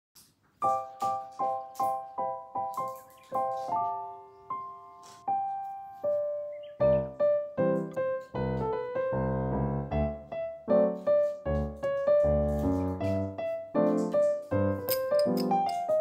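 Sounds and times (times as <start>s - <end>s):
piano music: 0.6s - 16.0s.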